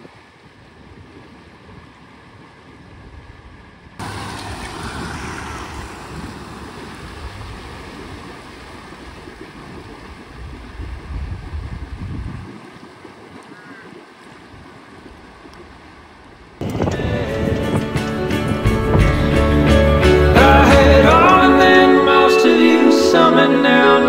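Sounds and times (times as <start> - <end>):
vehicle engine running low: 4.0 - 8.3
water surging and splashing: 4.0 - 17.1.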